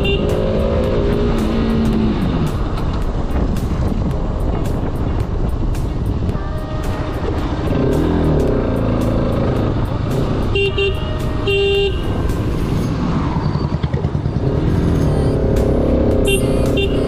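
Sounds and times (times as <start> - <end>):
vehicle horn beeps: 0.0 - 0.6, 10.5 - 12.2, 16.3 - 17.0
motorcycle engine running: 0.0 - 17.0
traffic noise: 0.0 - 17.0
wind: 0.0 - 17.0.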